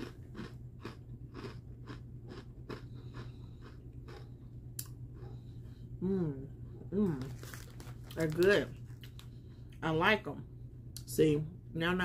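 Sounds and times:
person chewing crunchy snack: 0:00.0 - 0:05.5
steady low hum: 0:00.0 - 0:12.0.

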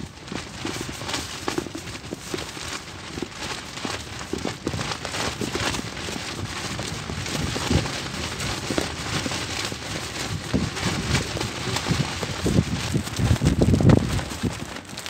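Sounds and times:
wind buffeting microphone: 0:03.0 - 0:15.0.

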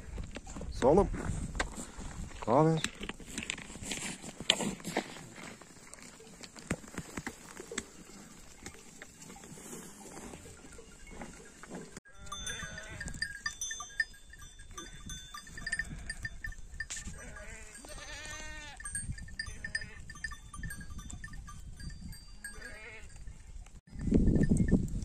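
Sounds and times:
animal bells clinking: 0:04.3 - 0:25.0
sheep and goats bleating: 0:07.0 - 0:20.4, 0:22.2 - 0:23.6.

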